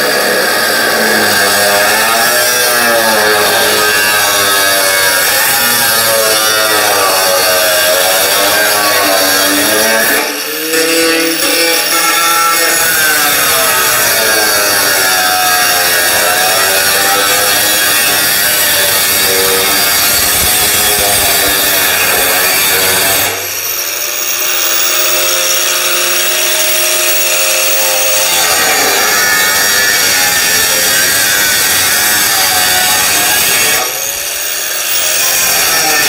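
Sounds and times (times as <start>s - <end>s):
angle grinder cutting metal: 0.0s - 36.0s.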